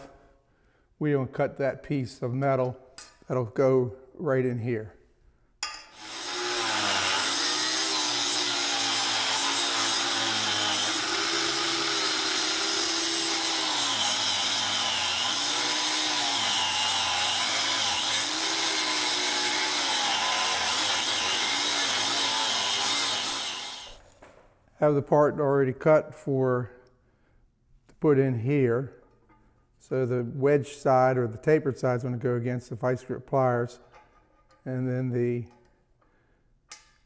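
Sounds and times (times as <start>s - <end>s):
angle grinder cutting steel: 5.9s - 24.0s.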